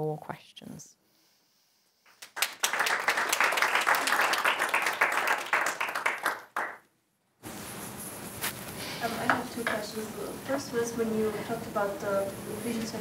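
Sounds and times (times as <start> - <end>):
audience applauding: 2.1 - 6.8.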